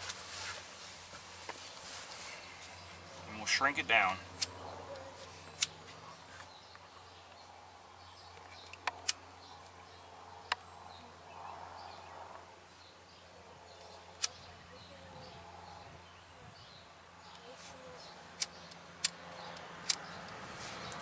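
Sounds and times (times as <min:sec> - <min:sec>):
sharp clicks: 0:05.5 - 0:05.8, 0:08.3 - 0:09.2, 0:18.4 - 0:21.0.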